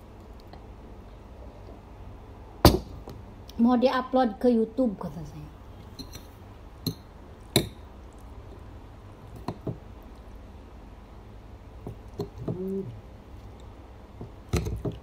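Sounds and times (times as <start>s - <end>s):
person humming: 12.4s - 13.0s.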